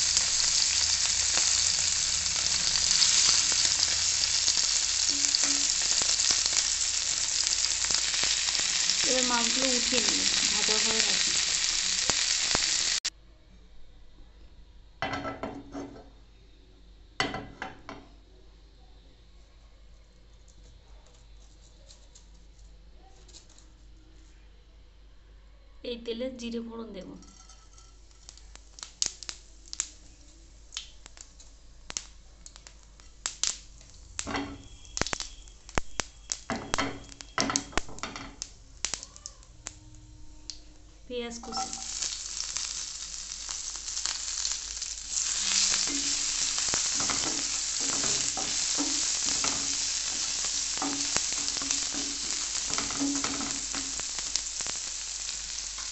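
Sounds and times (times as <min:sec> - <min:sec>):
seeds popping in hot oil: 0:00.0 - 0:13.1, 0:27.6 - 0:55.9.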